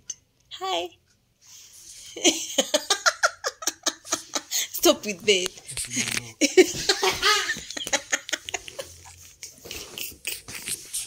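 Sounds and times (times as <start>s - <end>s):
woman laughing: 2.2s - 5.0s, 6.4s - 9.2s
quiet giggles and breaths: 3.8s - 11.0s.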